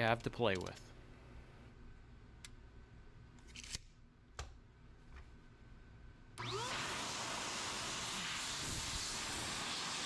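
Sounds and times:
blower motor whining: 6.4 - 10.0.

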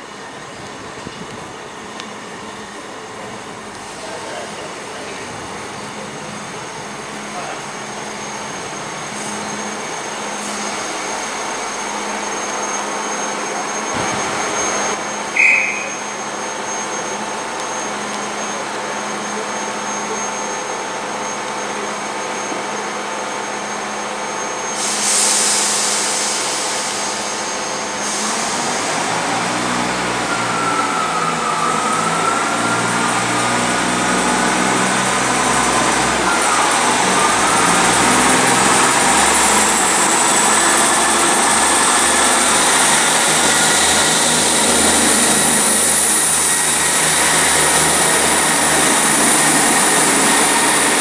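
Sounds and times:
train diesel engines idling: 0.0 - 51.0
short high beep: 12.7 - 17.0
air hissing: 24.8 - 28.7.

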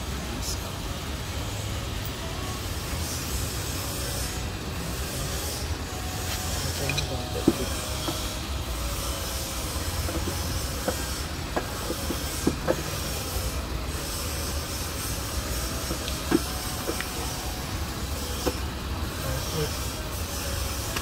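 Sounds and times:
steady hiss with low rumble: 0.0 - 3.7.

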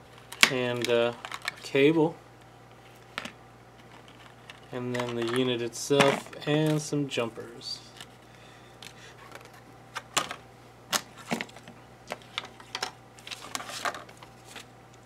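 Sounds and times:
paper rustling: 13.2 - 14.7.

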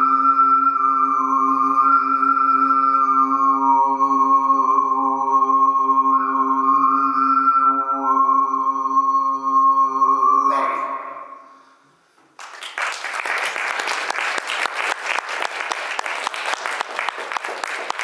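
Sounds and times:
audience applause: 12.4 - 18.0.

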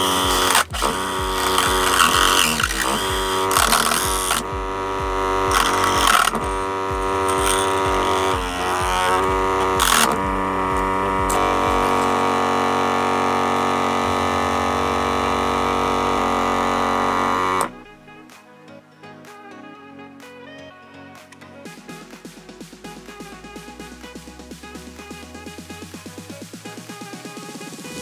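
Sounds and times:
small motor whining: 0.0 - 17.8.

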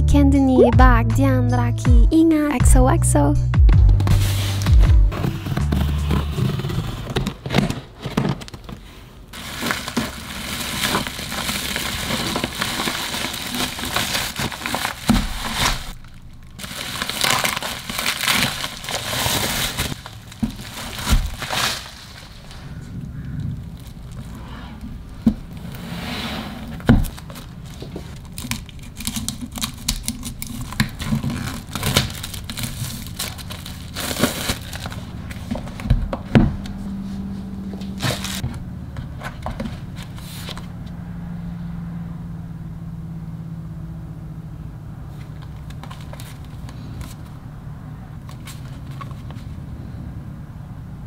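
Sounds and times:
plastic shrink-wrap crinkling: 4.2 - 24.4, 27.0 - 35.9, 37.8 - 38.4, 45.2 - 47.4.

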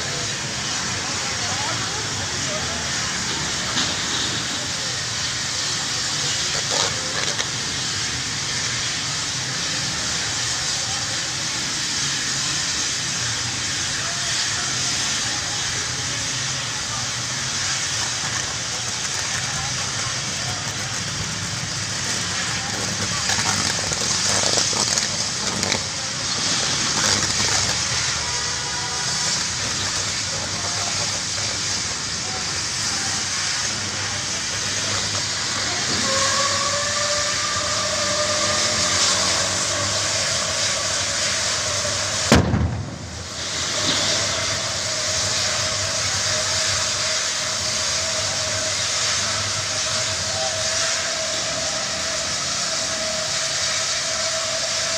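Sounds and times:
gas fire hissing: 0.0 - 54.9
sudden bang: 42.3 - 43.4.

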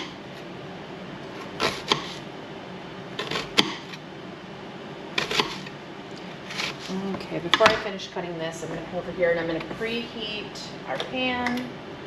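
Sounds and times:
knife slicing onion on cutting board: 1.4 - 2.2, 5.2 - 5.7.

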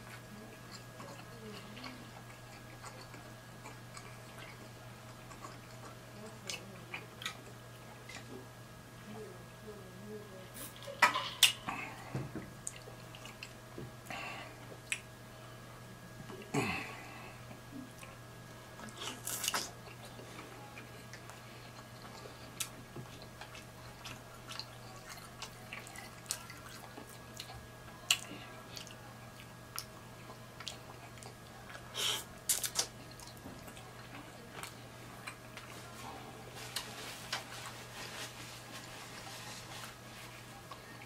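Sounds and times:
wet chewing mouth sounds: 0.0 - 8.4, 17.5 - 35.9
faint steady hum: 0.0 - 41.0.

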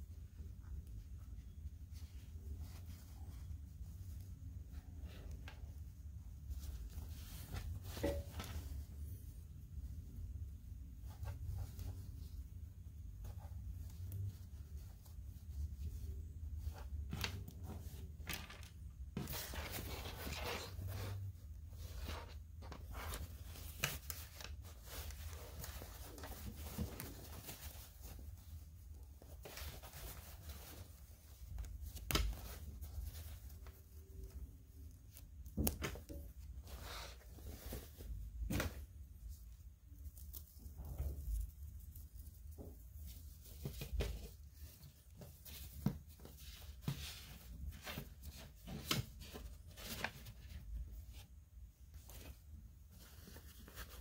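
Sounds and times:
cloth rustling: 0.1 - 54.0.

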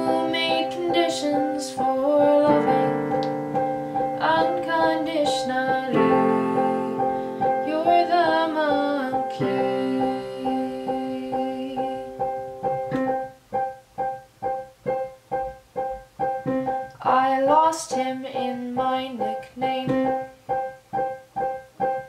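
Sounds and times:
woman singing: 0.0 - 3.3, 4.0 - 12.4, 17.0 - 20.3
piano chords: 0.0 - 22.0.

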